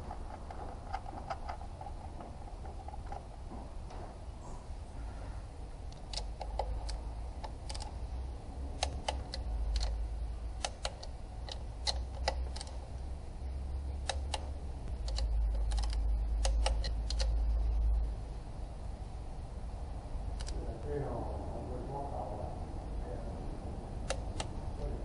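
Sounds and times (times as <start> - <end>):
low rumble: 12.6 - 25.0.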